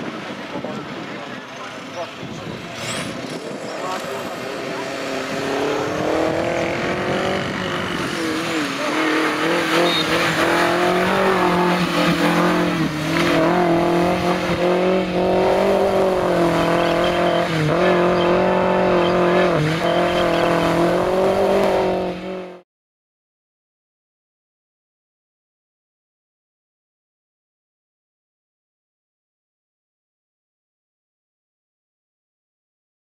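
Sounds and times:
off-road vehicle engine revving: 0.4s - 22.6s.

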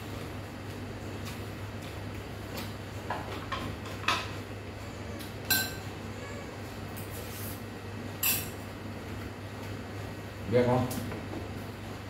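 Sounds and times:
spoon clinking against bowl: 5.5s - 5.8s.

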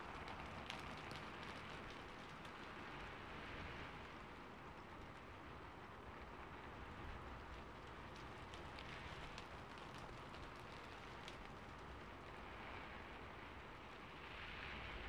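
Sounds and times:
single raindrop ticks: 0.0s - 4.0s, 7.4s - 12.1s
rain hissing on rooftop: 0.0s - 15.0s.

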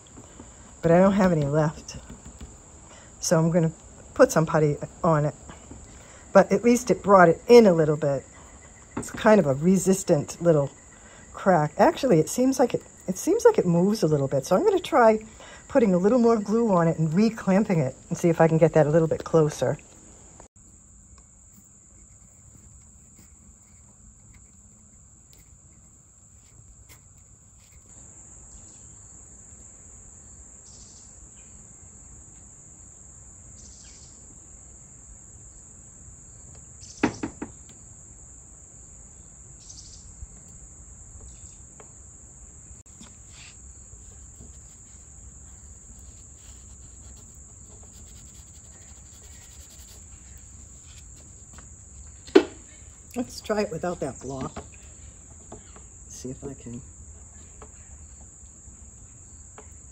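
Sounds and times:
high-pitched insect trill: 20.6s - 59.9s
sharp knock on wood: 37.0s - 37.6s.

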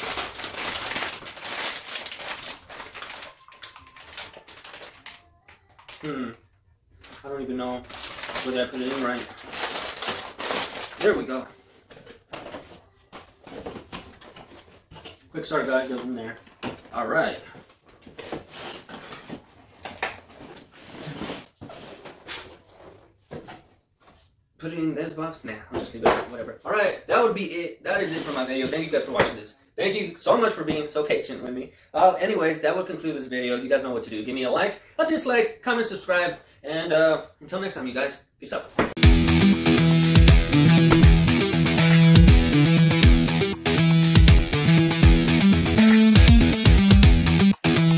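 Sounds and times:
plastic bag crinkling: 0.0s - 6.3s, 6.9s - 11.5s
cardboard rustling and scraping: 7.9s - 24.3s.

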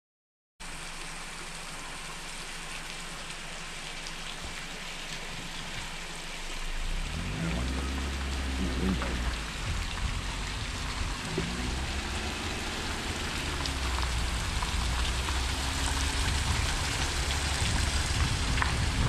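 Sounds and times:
splashing water: 0.6s - 19.0s
low rumble: 4.8s - 19.0s.

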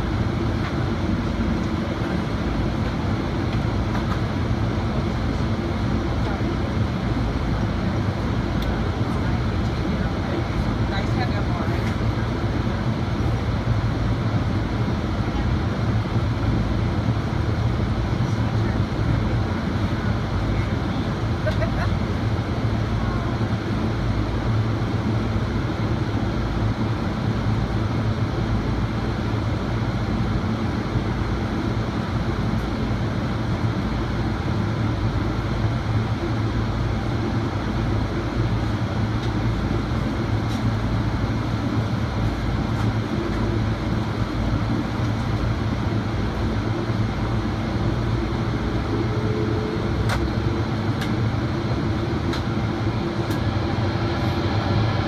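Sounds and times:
jet engine drone: 0.0s - 55.0s
rushing airflow: 37.8s - 55.0s.

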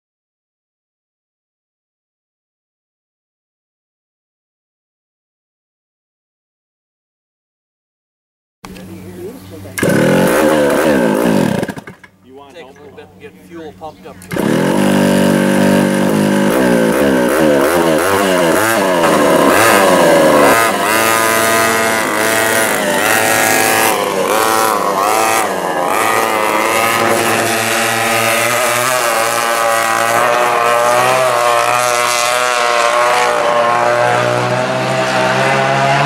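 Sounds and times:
two-stroke kart engines revving: 8.7s - 36.0s.

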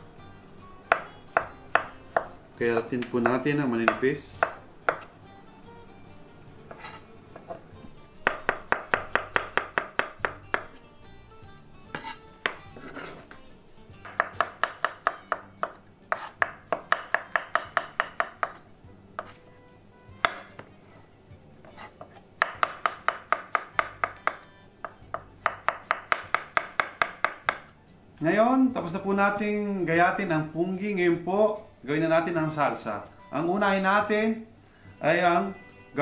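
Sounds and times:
knife tapping on wooden board: 0.9s - 2.4s, 3.0s - 5.1s, 8.2s - 10.7s, 11.9s - 13.4s, 14.0s - 18.6s, 20.2s - 20.7s, 22.4s - 27.7s.

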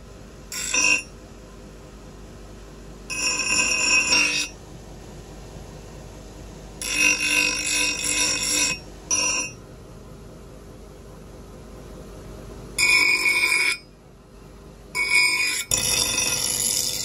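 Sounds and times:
grinding wheel screeching on blade: 0.5s - 1.1s, 3.1s - 4.5s, 6.8s - 9.6s, 12.8s - 13.8s, 15.0s - 17.0s.

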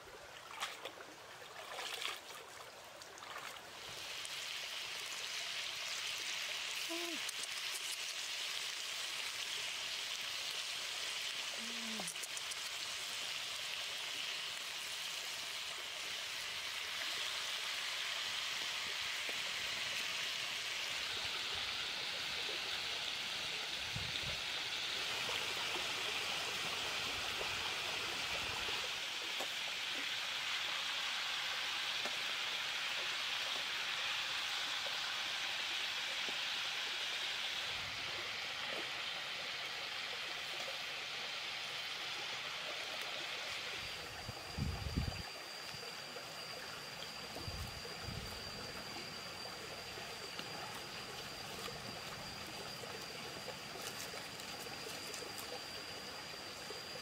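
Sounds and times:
food sizzling in hot oil: 3.8s - 22.2s.

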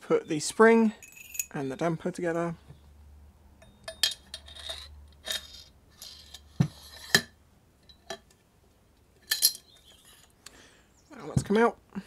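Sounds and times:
metal parts knocking: 9.2s - 10.1s.

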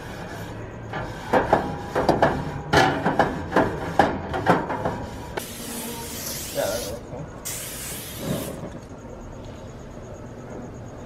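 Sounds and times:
steady hiss: 5.4s - 8.9s.

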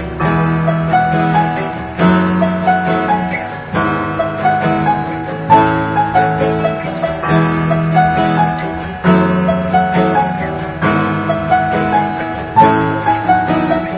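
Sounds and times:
piano-led instrumental music: 0.0s - 13.9s.

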